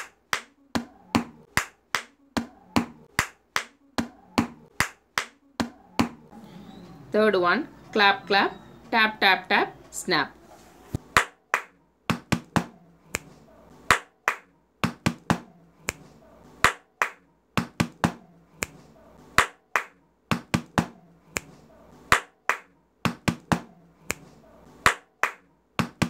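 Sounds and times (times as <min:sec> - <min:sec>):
hand claps: 0:00.0 - 0:06.2, 0:11.2 - 0:18.8, 0:19.4 - 0:26.0
hand taps: 0:11.2 - 0:13.3
finger snaps: 0:13.1 - 0:14.4, 0:15.8 - 0:17.2, 0:18.6 - 0:18.8, 0:21.3 - 0:22.7, 0:24.0 - 0:25.9.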